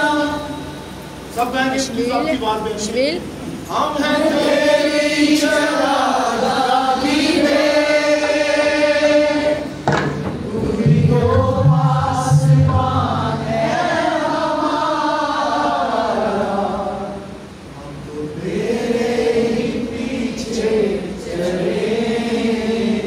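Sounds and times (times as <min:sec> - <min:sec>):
people singing together: 0:00.0 - 0:01.2, 0:03.6 - 0:23.0
sharp knock: 0:09.8 - 0:12.8.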